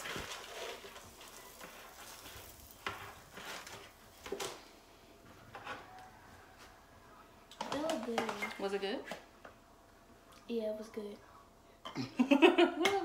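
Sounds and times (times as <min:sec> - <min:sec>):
food sizzling in a pan: 0:00.0 - 0:04.3.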